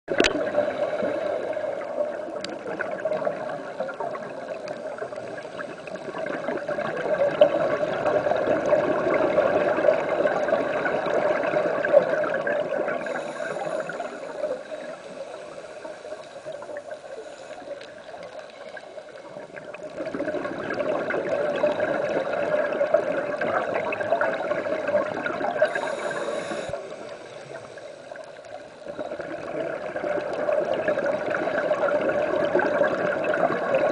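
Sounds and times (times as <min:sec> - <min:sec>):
high hiss: 0:13.0 - 0:19.4, 0:25.6 - 0:28.9.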